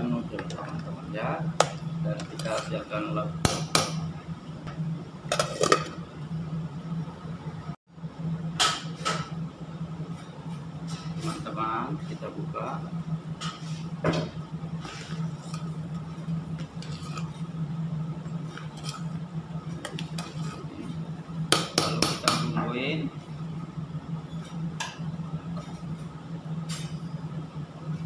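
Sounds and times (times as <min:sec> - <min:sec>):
steady low hum: 0:00.0 - 0:28.0
ladle scraping and clinking pot: 0:16.8 - 0:17.5.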